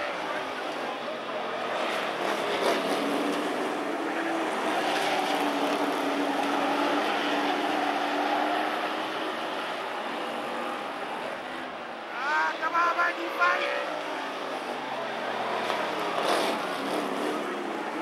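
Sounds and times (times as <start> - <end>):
race truck engines running hard: 0.0 - 18.0.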